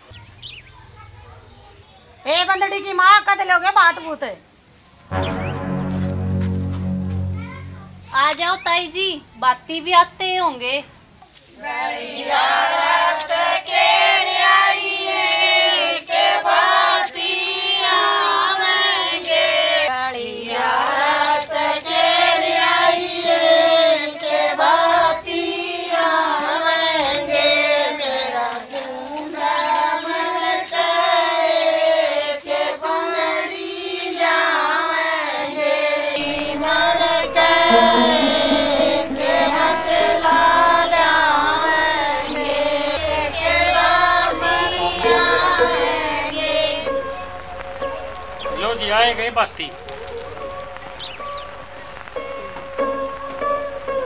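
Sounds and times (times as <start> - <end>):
women singing in unison: 11.6 - 47.4.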